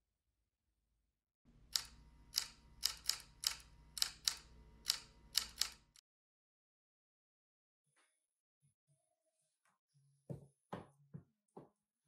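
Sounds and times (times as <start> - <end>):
typewriter keys clacking: 1.7 - 6.0.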